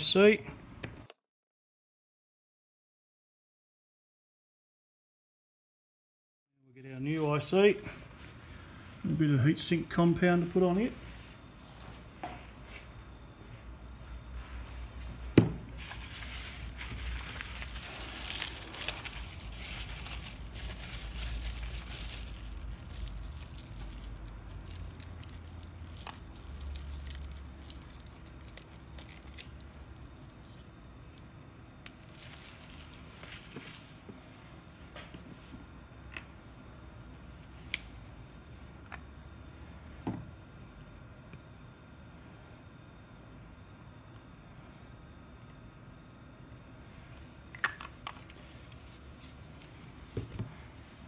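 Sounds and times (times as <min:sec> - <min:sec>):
bubble wrap crinkling: 0:15.6 - 0:34.1, 0:36.5 - 0:39.0, 0:47.6 - 0:50.1.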